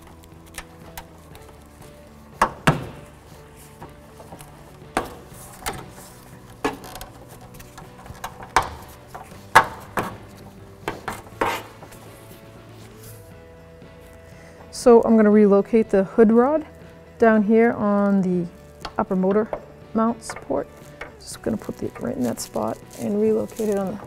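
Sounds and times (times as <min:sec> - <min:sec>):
metal rod knocking and rattling: 0:06.6 - 0:11.9.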